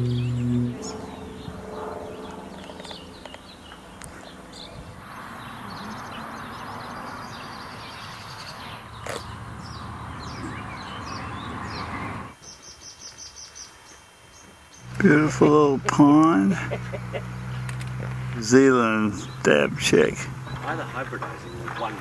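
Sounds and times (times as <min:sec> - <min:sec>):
repeated high bird notes: 0:00.0 - 0:01.9
small birds chirping: 0:00.0 - 0:22.0.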